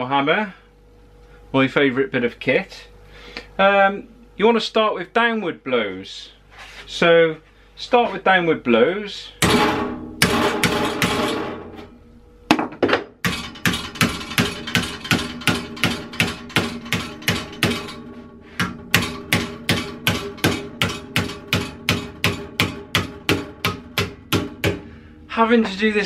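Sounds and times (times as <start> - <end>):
hammer striking steel sheet: 9.4 - 11.9, 13.2 - 24.9.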